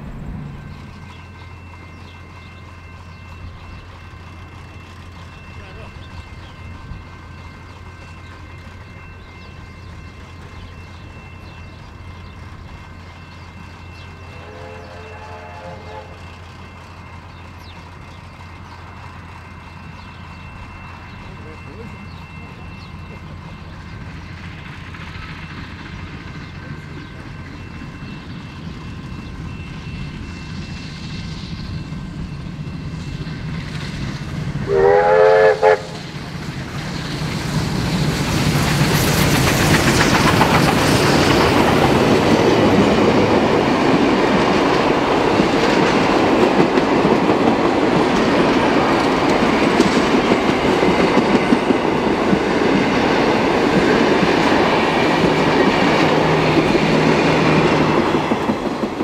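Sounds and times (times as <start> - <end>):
steam train passing: 0.0 - 59.0
steam whistle blast: 14.3 - 16.2, 34.7 - 36.0.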